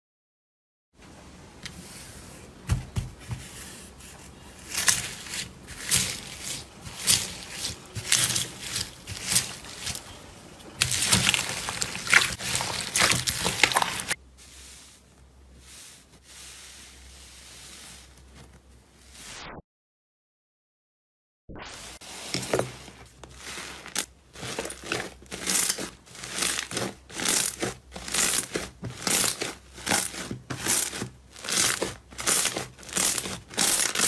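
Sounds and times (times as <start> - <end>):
slime squelching and popping: 10.8 - 14.2.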